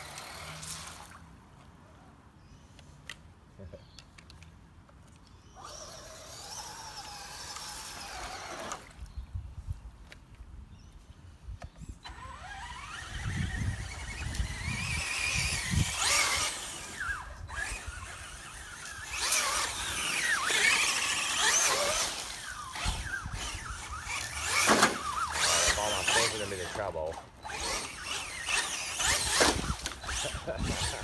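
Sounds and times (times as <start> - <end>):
electric motors whining: 0.0 - 1.2, 5.4 - 9.1, 12.0 - 31.0.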